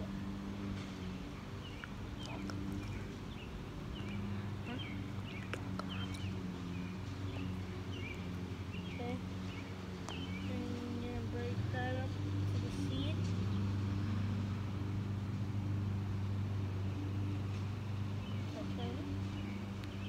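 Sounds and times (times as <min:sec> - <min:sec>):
steady low hum: 0:00.0 - 0:20.0
small bird chirping: 0:01.6 - 0:12.2.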